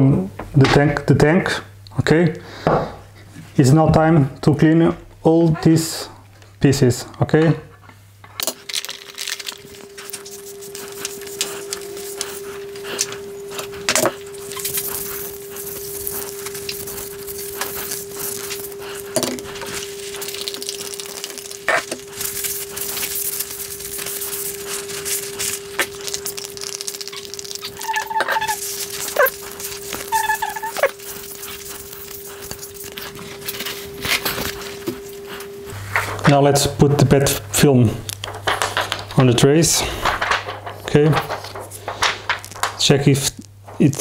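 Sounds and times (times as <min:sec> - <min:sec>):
steady low hum: 0:00.0 - 0:44.0
paper towel rubbing plastic: 0:09.1 - 0:44.0
short squeaks: 0:27.1 - 0:29.4.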